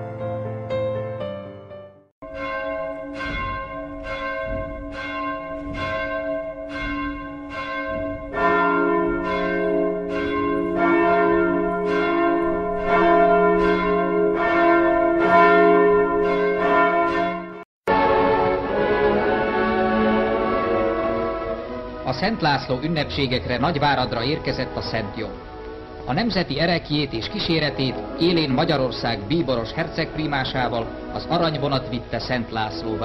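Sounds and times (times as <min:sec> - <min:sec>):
music: 0:00.0 - 0:33.0
deeper bell: 0:02.2 - 0:18.6, 0:26.0 - 0:33.0
church bells ringing: 0:02.2 - 0:33.0.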